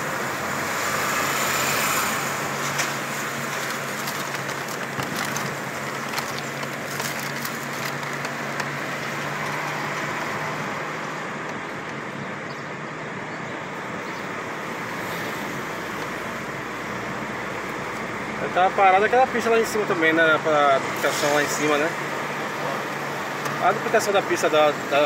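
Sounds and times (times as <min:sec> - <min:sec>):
low engine hum: 0:00.0 - 0:18.6
road noise inside car: 0:00.0 - 0:25.0.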